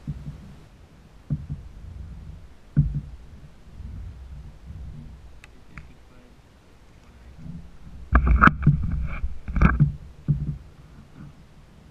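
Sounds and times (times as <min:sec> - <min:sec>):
knocking on plastic kayak: 0:00.0 - 0:00.4, 0:01.3 - 0:05.2
low rumble: 0:00.0 - 0:11.9
faint clicks: 0:01.3 - 0:06.0.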